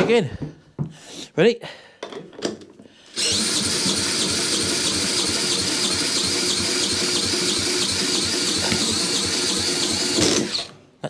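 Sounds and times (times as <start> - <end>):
cordless drill whine: 3.1 - 10.8.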